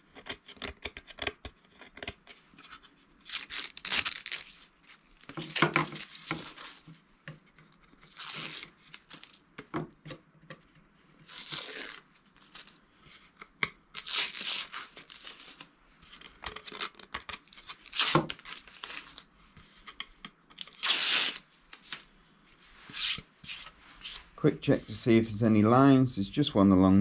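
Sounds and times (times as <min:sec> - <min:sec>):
tape crinkling: 0:03.2 - 0:06.9, 0:07.6 - 0:09.4, 0:11.2 - 0:12.8, 0:13.9 - 0:15.7, 0:16.5 - 0:19.3, 0:20.5 - 0:22.1
tape ripping off wood: 0:11.3 - 0:12.0, 0:16.8 - 0:18.6, 0:20.6 - 0:21.4.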